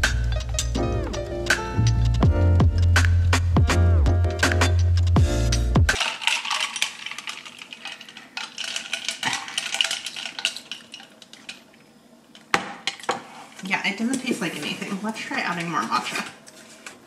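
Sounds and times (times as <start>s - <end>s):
ice clinking in glass: 6.0s - 11.6s.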